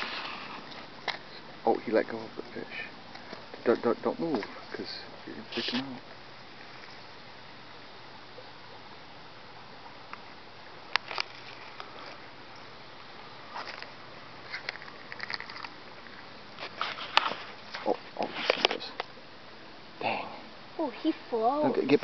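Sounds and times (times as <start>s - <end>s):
small clicks and rustles: 10.9s - 12.8s, 13.5s - 19.2s.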